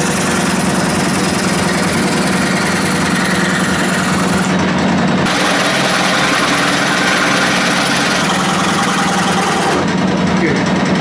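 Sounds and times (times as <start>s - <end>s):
scroll saw cutting wood: 0.0s - 10.0s.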